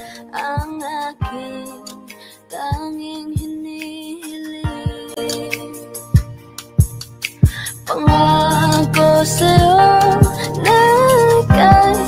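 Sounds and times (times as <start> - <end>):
slow love song instrumental: 0.0 - 12.0
drum beats: 4.6 - 12.0.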